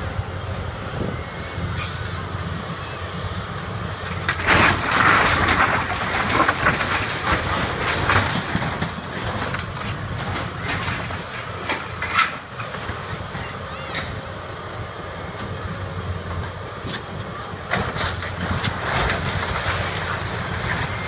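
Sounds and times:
excavator engine under load: 0.0s - 21.0s
metal sheeting crashing and scraping: 4.3s - 12.4s.

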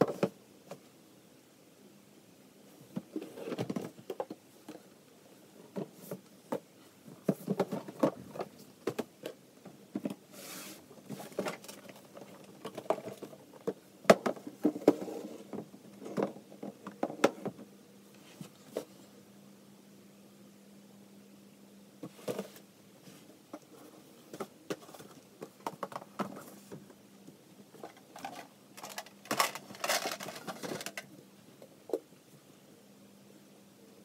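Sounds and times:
cardboard boxes handled on shelf: 5.7s - 17.6s, 22.0s - 27.0s.

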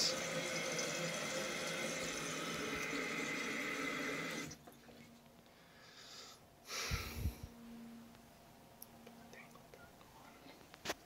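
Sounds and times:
toilet fill valve hissing: 0.0s - 4.6s.

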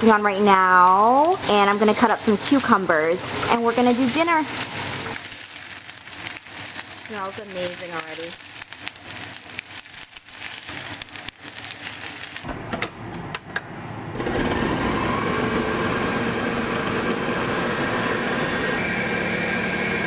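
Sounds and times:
blender motor running: 14.2s - 20.0s.

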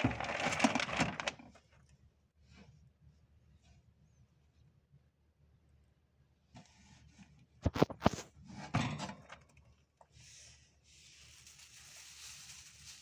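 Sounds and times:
hamster rustling in bedding: 10.4s - 13.0s.

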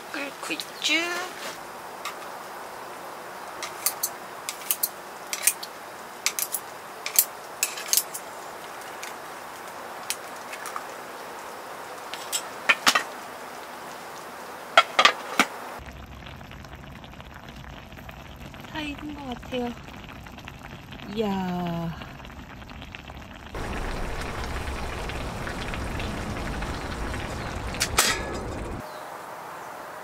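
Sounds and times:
steady hiss: 23.6s - 30.0s.

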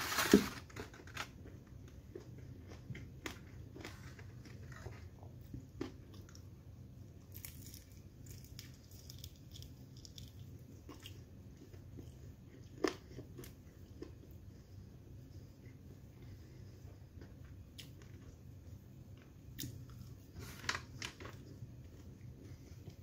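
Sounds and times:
pastry crunch: 0.0s - 14.6s
low steady hum: 0.0s - 23.0s
pastry tearing and chewing: 7.2s - 14.3s.

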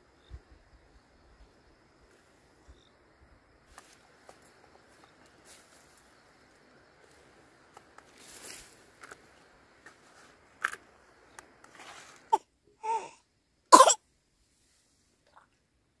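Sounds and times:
person coughing: 13.8s - 14.0s.

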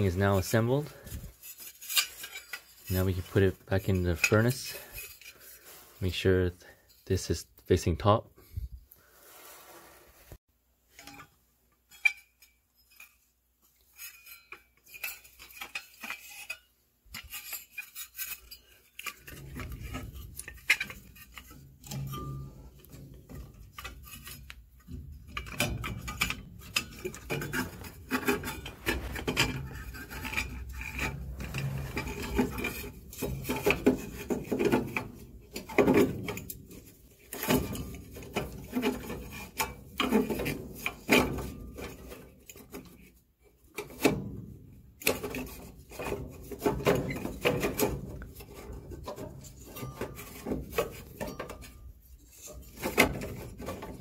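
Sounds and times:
metal scraping against metal: 0.0s - 7.8s, 8.4s - 43.1s, 45.0s - 54.0s
metallic clinks and knocks: 10.9s - 42.6s.

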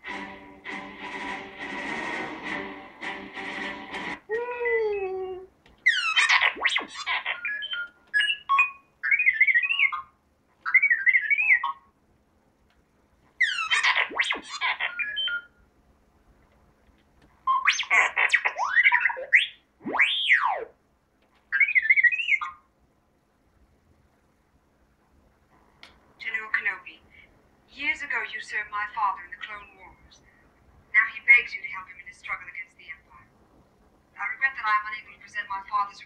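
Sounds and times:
robot beeps and chirps: 5.9s - 10.0s, 13.4s - 15.5s.

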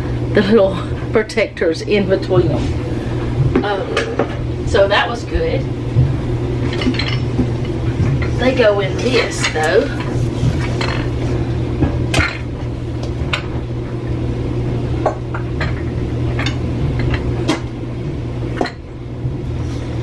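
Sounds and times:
steady low hum: 0.0s - 20.0s
dishes clinking: 6.6s - 7.5s, 9.0s - 11.1s.

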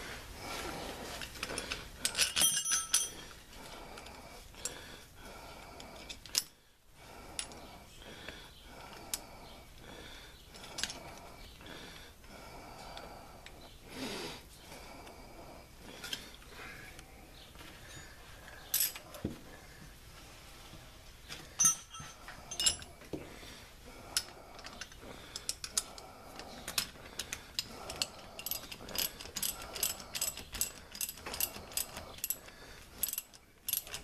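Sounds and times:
small metal clicks and clinks: 1.2s - 3.4s, 5.8s - 6.6s, 7.4s - 7.6s, 10.5s - 11.2s, 18.6s - 19.2s, 21.6s - 22.9s, 24.1s - 34.0s
ringing metal clatter: 2.0s - 3.2s, 21.6s - 22.9s.

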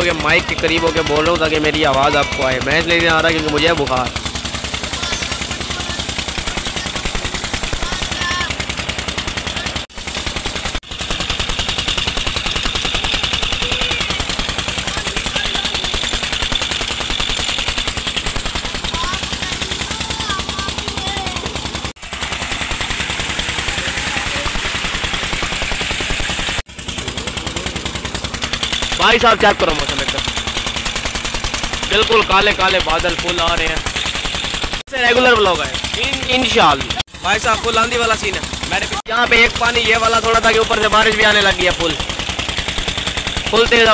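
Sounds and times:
engine running with rapid beat: 0.0s - 43.9s
gushing water: 21.7s - 43.9s.

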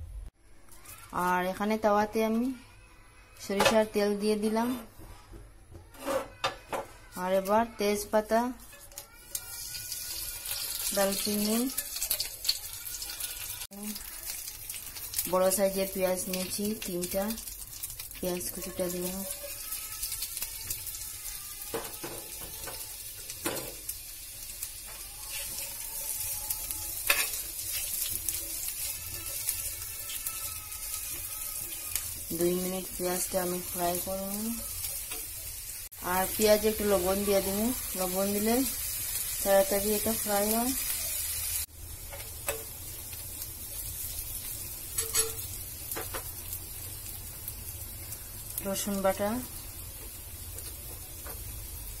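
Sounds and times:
spoon scraping a pan: 5.9s - 6.9s, 8.6s - 13.7s, 24.6s - 32.3s, 44.9s - 46.2s
onions sizzling in oil: 7.1s - 52.0s.

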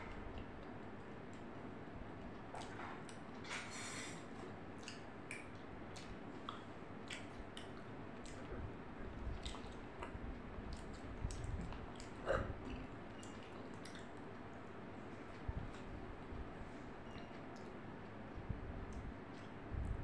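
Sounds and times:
person chewing softly: 0.0s - 20.0s.

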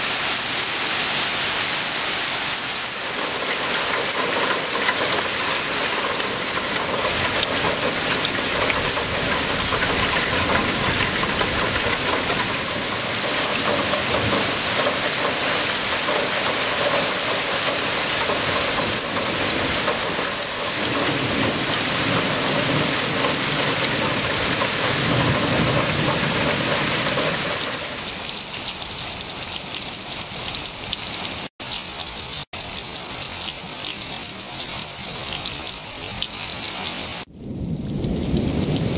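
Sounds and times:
steady rain falling: 0.0s - 38.9s
low rumble of thunder: 3.2s - 27.8s, 37.2s - 38.9s.

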